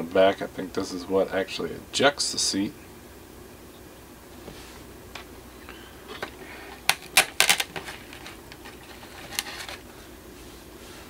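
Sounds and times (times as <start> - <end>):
plastic parts clicking: 6.1 - 9.8.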